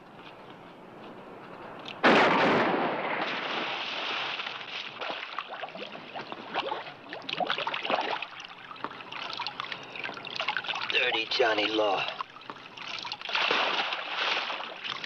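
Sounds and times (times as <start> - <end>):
heavy splash into water: 2.1 - 5.6, 13.3 - 14.8
water sloshing: 3.3 - 15.0.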